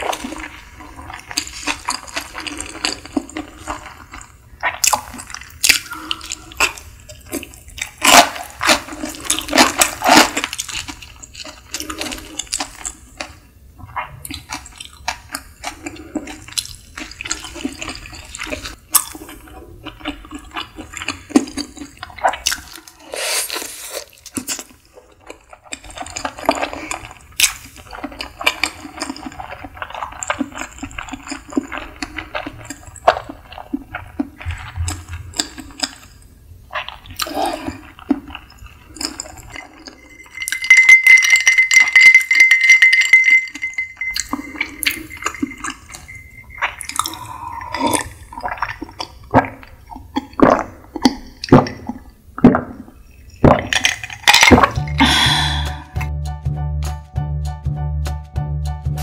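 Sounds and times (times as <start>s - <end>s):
person chewing: 0.0s - 56.1s
glass clinking: 38.6s - 48.7s
music: 54.6s - 59.0s.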